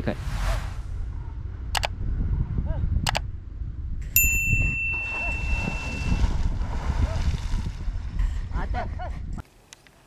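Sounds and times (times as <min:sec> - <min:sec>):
low rumble: 0:00.0 - 0:04.2
bell-like notification ding: 0:04.2 - 0:06.2.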